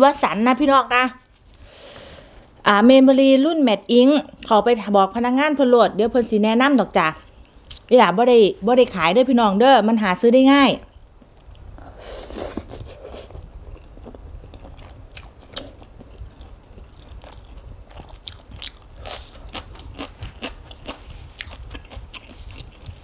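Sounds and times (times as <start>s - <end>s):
wet chewing of noodles: 11.3s - 23.0s
crunching raw vegetable: 11.4s - 23.0s.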